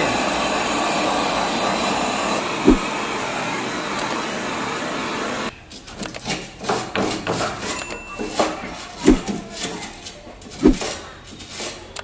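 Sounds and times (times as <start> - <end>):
blowtorch hissing: 0.0 - 5.5.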